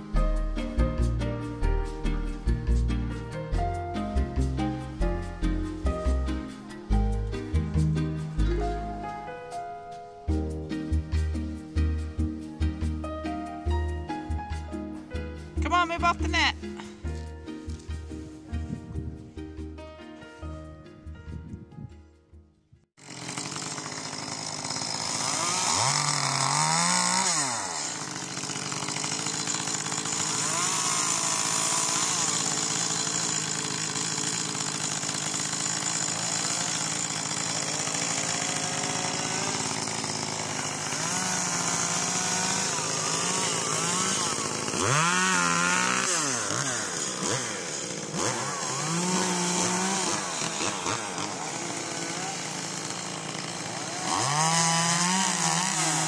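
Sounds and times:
chainsaw idling and revving: 15.6s - 17.0s, 23.0s - 56.0s.

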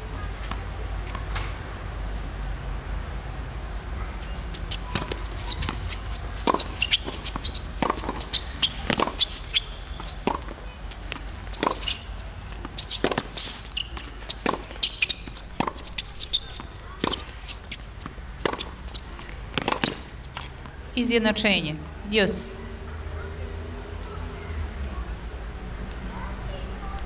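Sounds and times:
tennis ball knocks: 4.7s - 9.4s, 10.0s - 20.7s.

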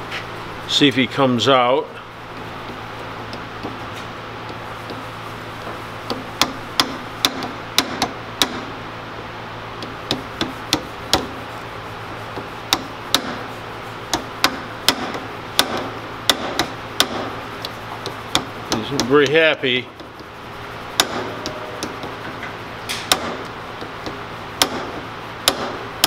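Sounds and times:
hammer tapping pin punch: 6.1s - 8.7s, 9.8s - 11.4s, 12.4s - 13.4s, 14.1s - 19.4s, 20.9s - 22.2s, 22.9s - 26.0s.

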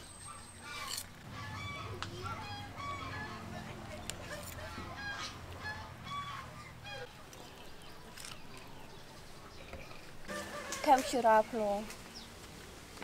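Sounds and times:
domestic fowl calling: 0.3s - 3.6s, 4.3s - 7.1s, 10.3s - 11.4s.

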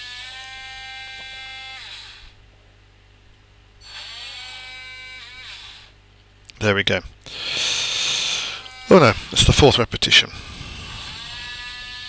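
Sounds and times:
robot arm motors whining: 0.0s - 2.4s, 3.8s - 6.0s, 7.9s - 12.0s.

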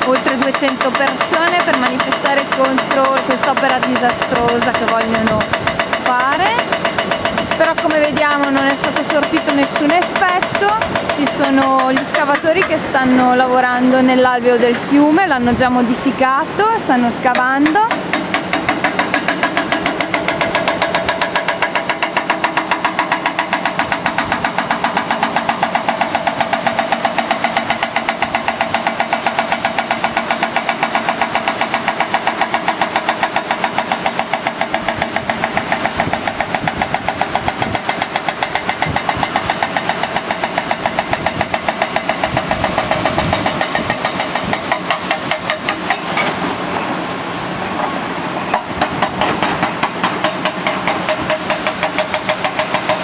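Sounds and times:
hydraulic breaker hammering rock: 0.0s - 14.2s, 16.6s - 46.5s, 47.8s - 53.0s
diesel engine running: 0.0s - 53.0s.

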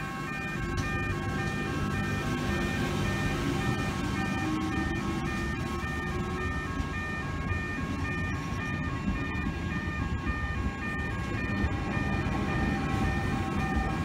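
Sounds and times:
level crossing alarm bell: 0.0s - 14.0s.

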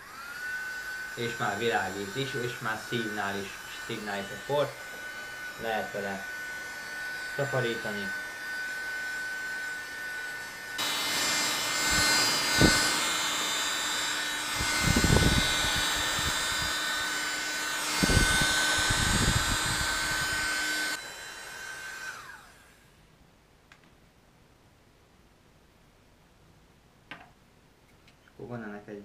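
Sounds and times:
vacuum motor whining: 0.0s - 22.9s.

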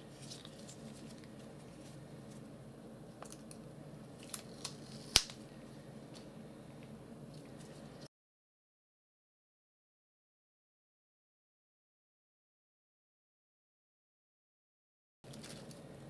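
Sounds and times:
paper handling: 0.0s - 2.5s.

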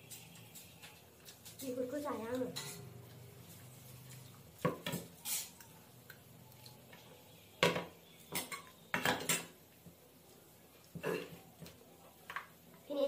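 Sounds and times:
metal bowls clinking on a plate: 2.4s - 3.0s, 7.6s - 9.6s.

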